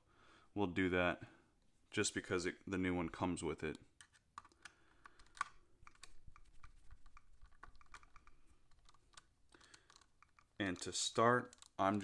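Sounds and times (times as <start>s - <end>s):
small parts being handled: 3.6s - 12.0s
hex driver clicking on screw: 7.1s - 12.0s.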